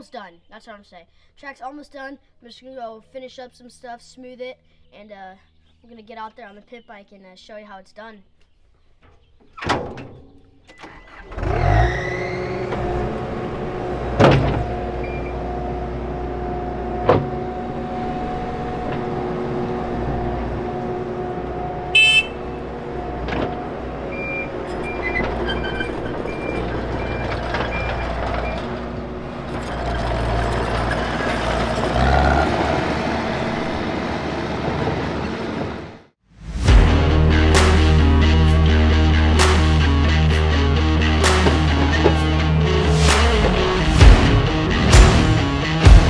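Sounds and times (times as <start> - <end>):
diesel engine running: 10.9 - 36.1, 36.7 - 46.0
short high warning beeps: 22.0 - 22.4
metal clanks: 23.0 - 32.5.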